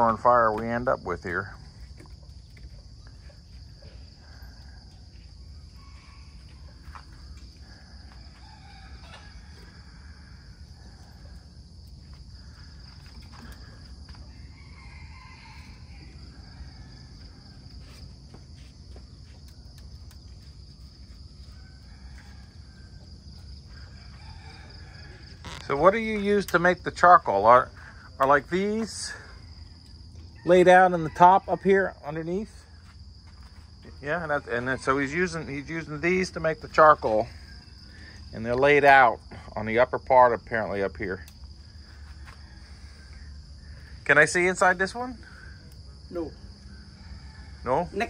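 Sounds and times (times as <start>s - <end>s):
high insect drone: 0.0s - 48.0s
rooster crowing faintly: 2.0s - 26.6s, 41.6s - 44.0s.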